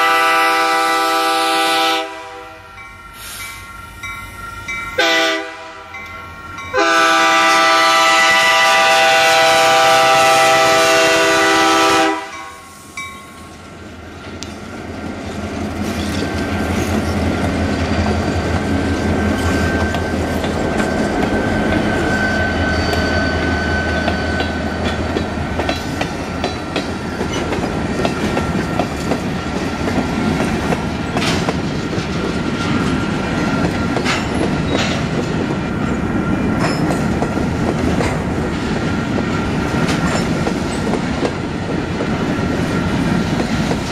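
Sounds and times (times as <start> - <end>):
locomotive air horn chord: 0.0 - 3.4, 5.0 - 6.0, 6.7 - 12.6
diesel locomotives rumbling: 0.0 - 43.9
freight cars clickety-clack: 14.2 - 22.2, 22.9 - 43.9.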